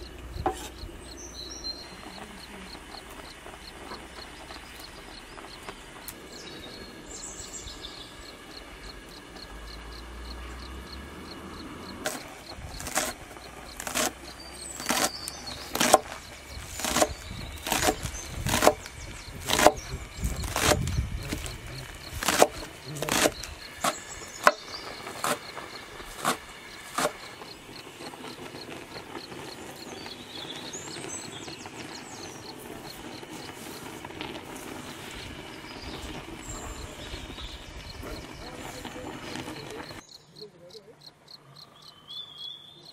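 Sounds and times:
faint bird-like chirps: 35.0 - 42.9.

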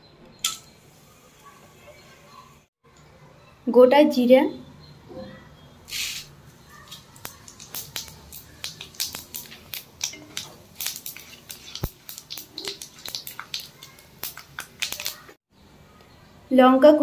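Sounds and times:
wooden spatula stirring: 6.5 - 15.4
seeds crackling in hot oil: 6.8 - 15.4.

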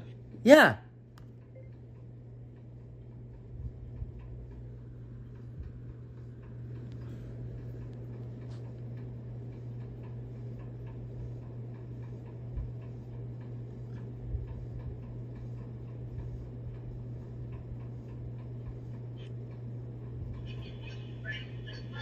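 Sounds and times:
steady low hum: 0.0 - 22.0
soft low thumps: 3.4 - 6.2.

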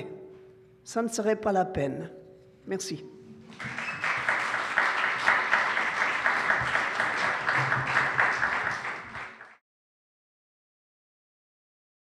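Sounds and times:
audience applauding: 3.5 - 9.6.

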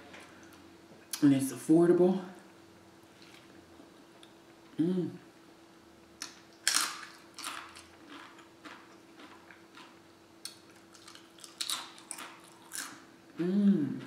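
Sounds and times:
chewing crunchy food: 6.2 - 14.0.

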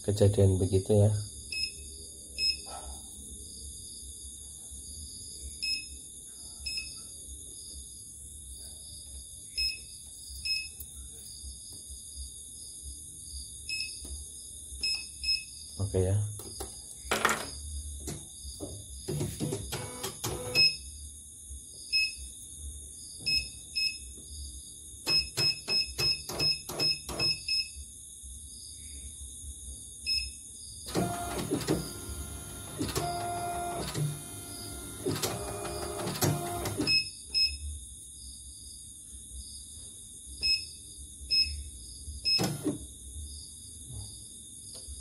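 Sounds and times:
embroidery machine motors whirring: 19.1 - 20.6, 30.9 - 36.9.

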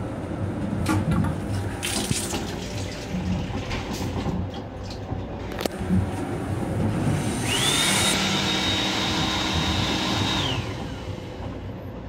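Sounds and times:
hand dryer motor whine: 7.1 - 11.6.

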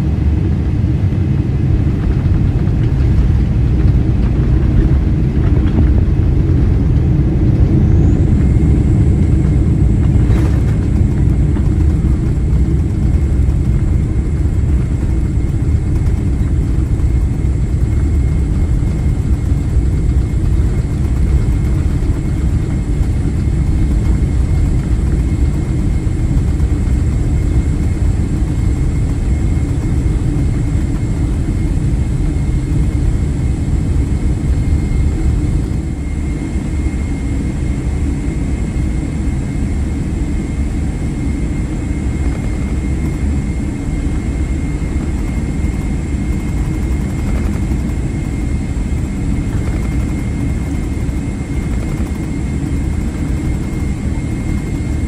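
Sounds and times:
wheels rumbling on runway: 0.0 - 36.2
faint high whine: 6.2 - 55.0.

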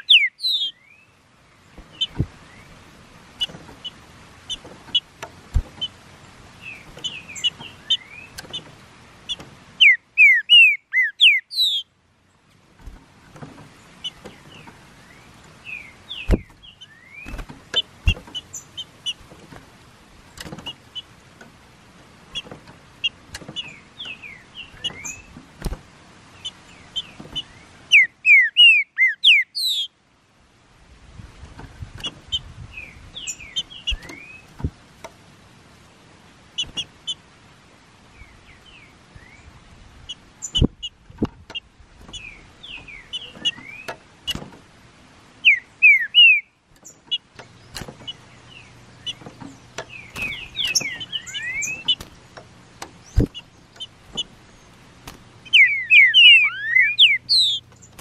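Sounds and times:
bird singing sweeping whistles: 0.0 - 1.1, 9.8 - 11.9, 27.9 - 29.9, 45.4 - 46.5, 50.0 - 52.0, 55.5 - 57.6.

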